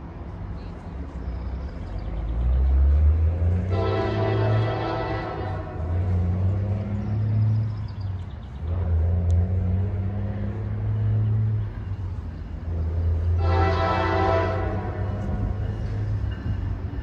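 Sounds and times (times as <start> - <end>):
diesel locomotive rumble: 0.0 - 17.0
locomotive horn: 3.5 - 6.3, 13.2 - 15.6.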